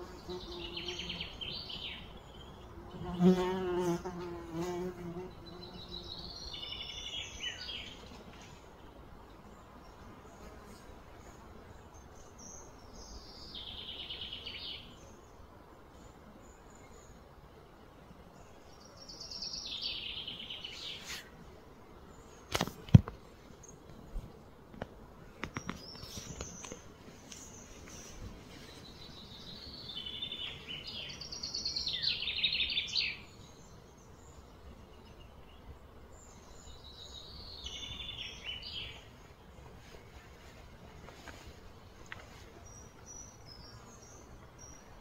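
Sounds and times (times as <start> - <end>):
songbird singing trilled phrases: 29.0 - 35.6.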